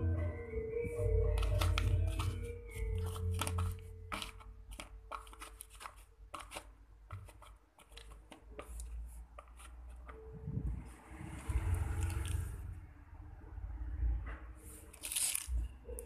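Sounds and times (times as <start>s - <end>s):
crumbly lumps crackling in plastic bowl: 1.5s - 10.2s.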